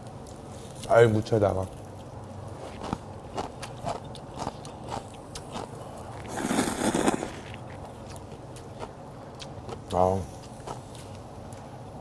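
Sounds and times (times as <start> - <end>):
chewing clicks: 2.7 - 6.4, 7.4 - 11.2
loud slurp of noodles: 6.2 - 7.6.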